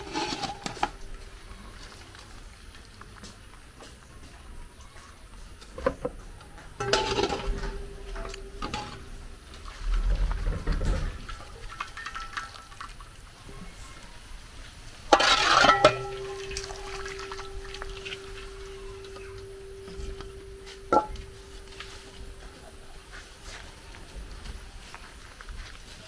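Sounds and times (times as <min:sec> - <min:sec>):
water pouring through colander holes: 0:00.0 - 0:03.0, 0:06.8 - 0:26.0
water splashing in a pot: 0:06.8 - 0:23.8.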